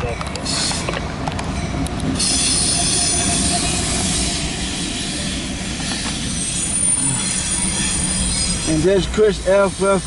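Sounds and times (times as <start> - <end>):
freight train rumbling: 0.0 - 10.0
wheels squealing on rail: 0.4 - 10.0.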